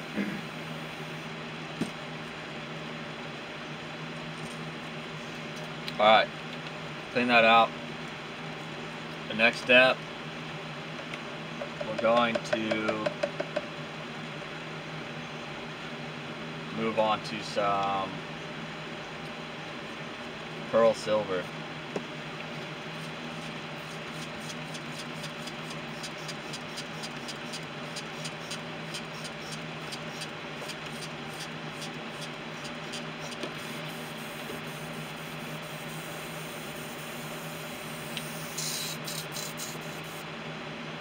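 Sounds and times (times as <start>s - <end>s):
ventilation whirring: 0.0s - 41.0s
airbrush spraying air: 23.0s - 40.2s.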